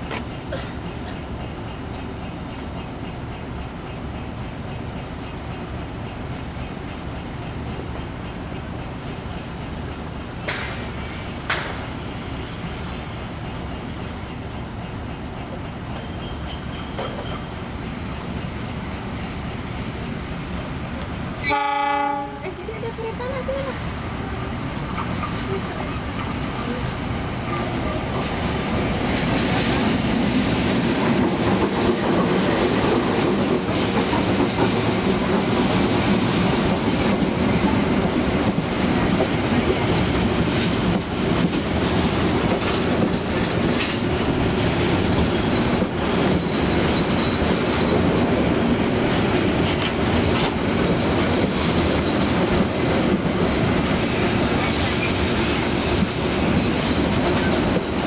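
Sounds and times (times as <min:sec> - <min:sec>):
wheels clacking over rail joints: 0:00.0 - 0:12.7, 0:13.3 - 0:58.0
passenger train passing: 0:00.0 - 0:58.0
wheel squeal: 0:53.8 - 0:57.6.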